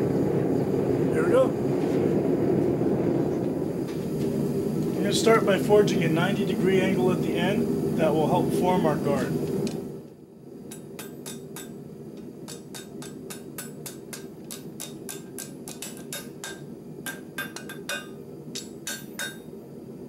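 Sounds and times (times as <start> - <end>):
low hum: 0.0 - 20.0
hammer striking metal on anvil: 10.7 - 19.6.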